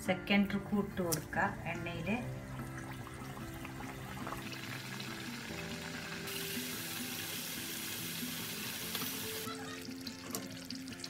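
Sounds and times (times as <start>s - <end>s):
background music: 0.0s - 11.0s
dough sizzling in hot oil: 2.4s - 11.0s.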